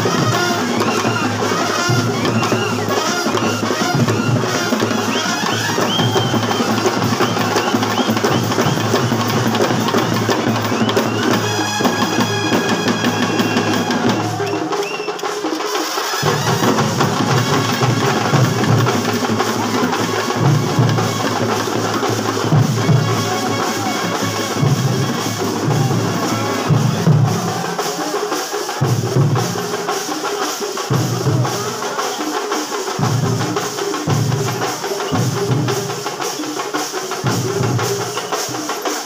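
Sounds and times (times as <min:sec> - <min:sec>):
brass band playing: 0:00.0 - 0:39.0
bass drum beats: 0:16.2 - 0:28.0.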